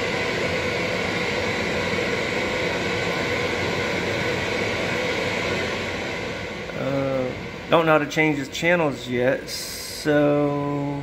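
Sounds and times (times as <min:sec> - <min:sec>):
radio static hiss: 0:06.7 - 0:11.0.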